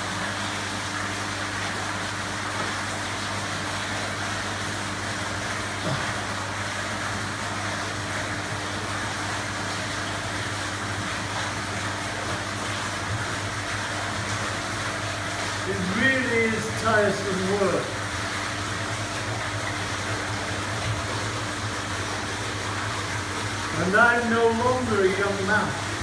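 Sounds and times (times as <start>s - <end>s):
machine hum with electrical drone: 0.0s - 26.0s.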